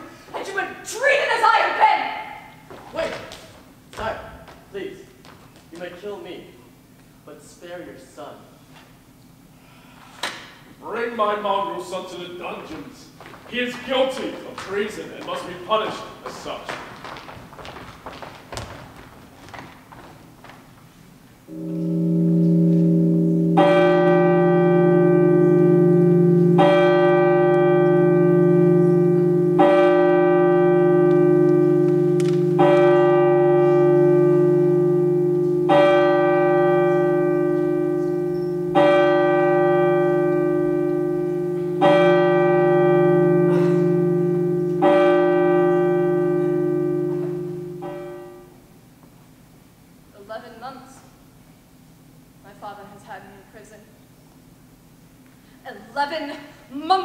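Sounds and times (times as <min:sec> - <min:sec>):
bell tolling: 0:21.5 - 0:48.5
low sustained tone: 0:21.5 - 0:48.6.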